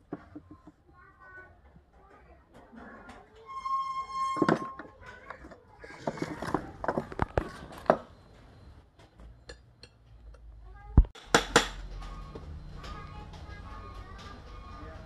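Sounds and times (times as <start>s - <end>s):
high held tone: 3.5s - 4.9s.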